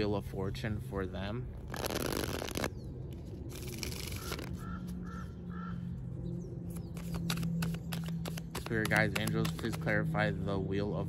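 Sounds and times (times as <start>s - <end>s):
playing cards shuffled: 1.6s - 5.0s, 6.7s - 9.9s
cards clicking: 3.5s - 5.0s, 6.7s - 10.0s
crow cawing: 4.6s - 6.0s.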